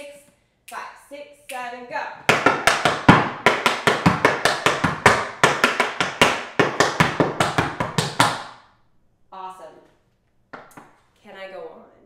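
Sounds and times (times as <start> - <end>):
tap shoes on wooden board: 2.3 - 8.5.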